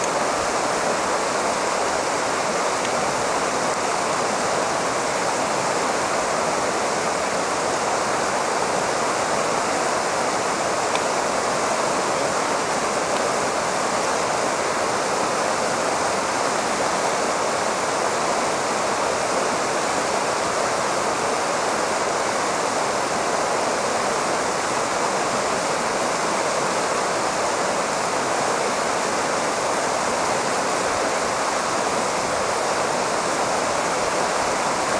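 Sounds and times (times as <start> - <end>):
stream running over rocks: 0.0 - 34.9.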